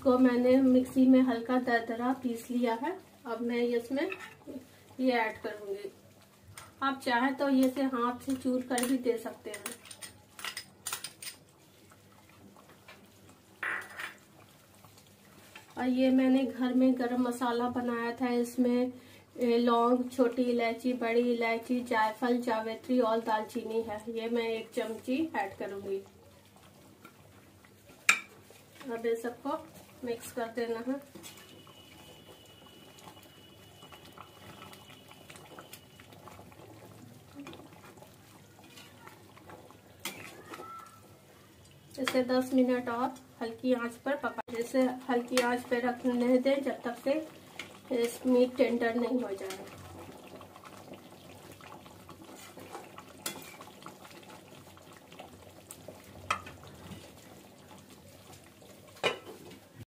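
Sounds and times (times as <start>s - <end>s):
gravy simmering with small pops: 0.0s - 59.9s
metal clinking on pan: 28.1s - 28.3s, 59.0s - 59.3s
spatula stirring thick gravy: 35.6s - 41.1s, 51.6s - 59.5s.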